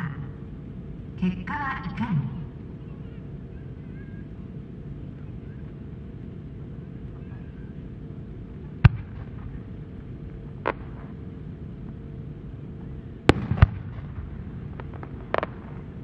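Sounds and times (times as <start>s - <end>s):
low background rumble: 0.0s - 16.0s
firework mortar boom: 8.8s - 9.6s, 13.2s - 15.9s.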